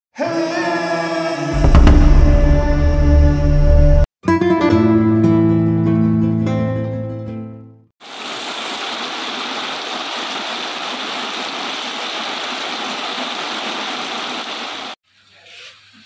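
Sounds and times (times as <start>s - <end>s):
heavy rain falling through trees: 8.0s - 15.0s.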